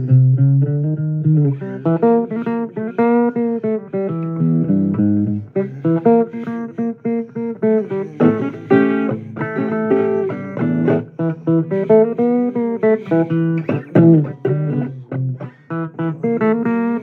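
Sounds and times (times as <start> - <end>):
blues guitar picking: 0.0 - 17.0
person singing: 1.3 - 4.2, 5.4 - 17.0.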